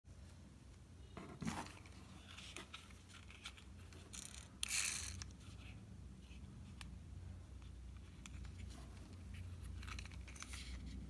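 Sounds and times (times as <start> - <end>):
plastic toy clicks and scrapes: 3.2 - 5.3.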